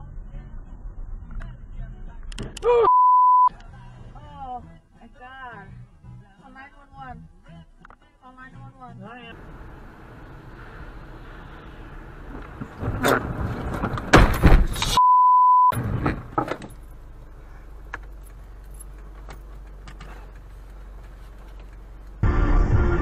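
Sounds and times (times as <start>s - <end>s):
censor beep: 2.9s - 3.5s, 15.0s - 15.8s
road noise: 9.3s - 15.0s, 15.7s - 23.0s
car crash bangs and crunches: 12.2s - 15.0s.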